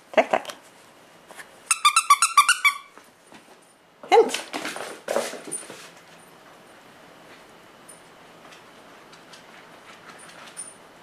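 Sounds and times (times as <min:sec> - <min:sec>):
squeaky toy squeaks: 0:01.7 - 0:03.0.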